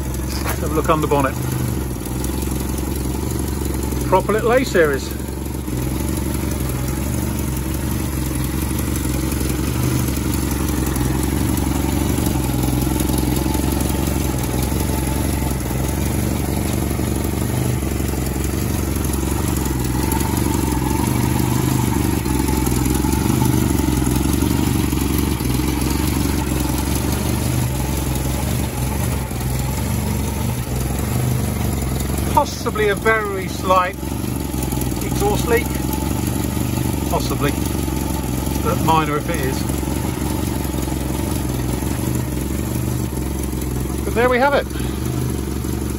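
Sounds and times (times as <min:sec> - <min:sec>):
car engine idling: 0:00.0 - 0:45.9.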